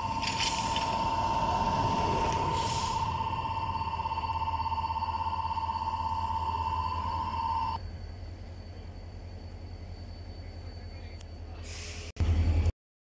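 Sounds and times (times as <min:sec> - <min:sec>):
level crossing alarm ringing: 0:00.0 - 0:07.8
diesel locomotive engine running: 0:00.0 - 0:12.7.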